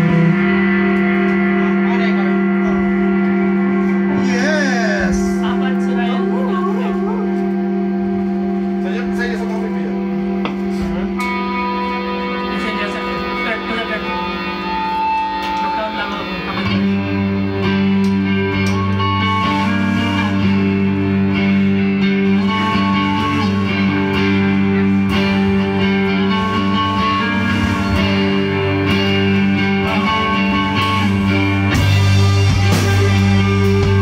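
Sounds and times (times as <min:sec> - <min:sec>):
electric guitars droning chords: 0:00.0 - 0:34.0
drums and cymbals: 0:22.3 - 0:34.0.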